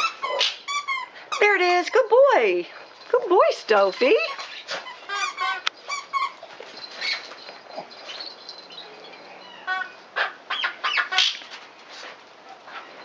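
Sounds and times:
squeaky toys squeaking: 0.0 - 1.8, 3.7 - 10.0.

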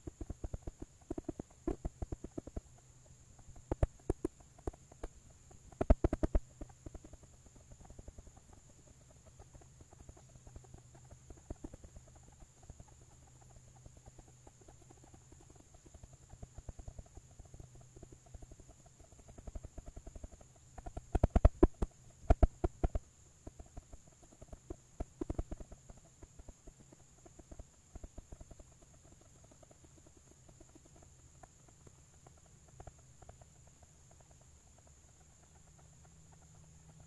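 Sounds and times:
faint high-pitched hiss: 0.0 - 37.0
rapid irregular knocking: 5.7 - 7.3.

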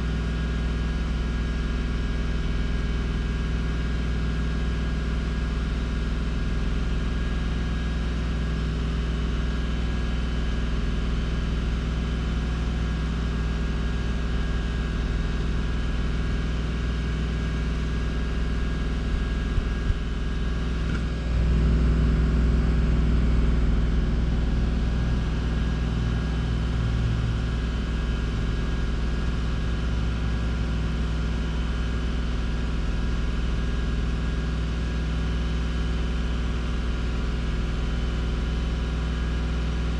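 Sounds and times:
car engine idling: 10.8 - 31.3.

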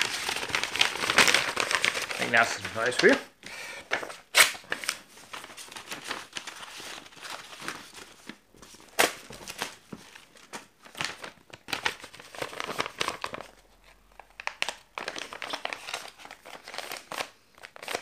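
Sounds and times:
paper tearing: 0.0 - 3.2
paper crinkling: 0.0 - 18.0.

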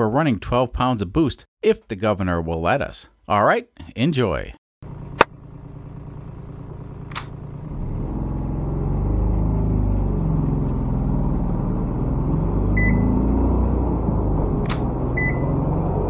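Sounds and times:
diesel car engine accelerating: 4.8 - 16.0.

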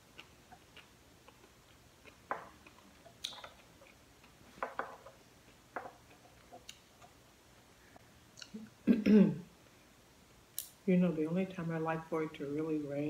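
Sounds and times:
chewing wet smacks: 0.0 - 4.3
chopsticks clicking: 0.2 - 4.0.

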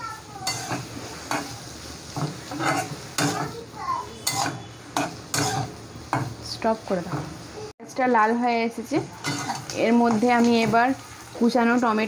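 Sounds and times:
onions sizzling in hot oil: 0.0 - 12.0
metal spatula scraping a pan: 0.4 - 6.3, 9.1 - 10.8.

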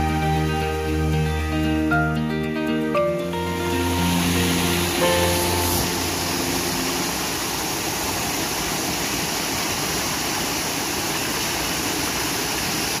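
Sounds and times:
small waterfall splashing into pool: 3.2 - 13.0.

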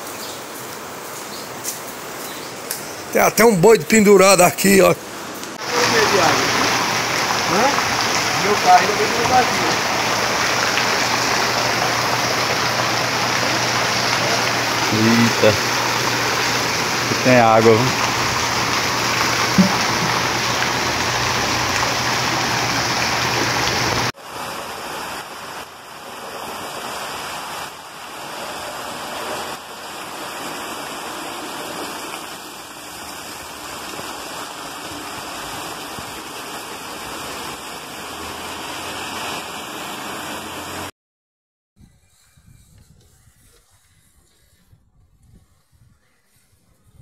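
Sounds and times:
floodwater rushing: 1.9 - 40.9
rain on a wet street: 4.6 - 40.9.

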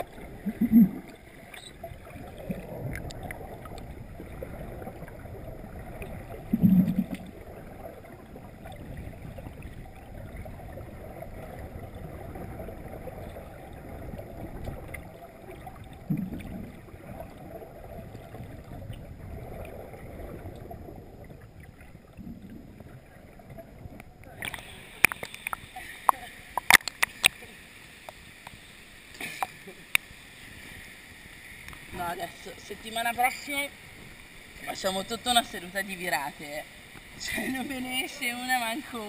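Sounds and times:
muffled underwater noise: 0.0 - 27.8.

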